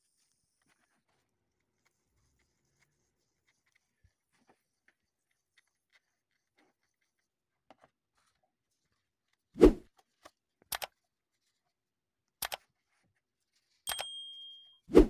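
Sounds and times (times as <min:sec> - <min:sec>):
mouse clicks: 0:10.7 - 0:10.9, 0:12.4 - 0:12.6.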